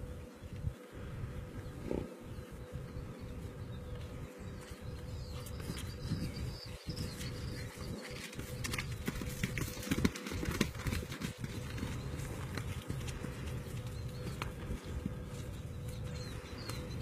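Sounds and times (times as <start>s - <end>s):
wind on microphone: 0.0s - 17.0s
hooves trotting on wet grass: 4.0s - 17.0s.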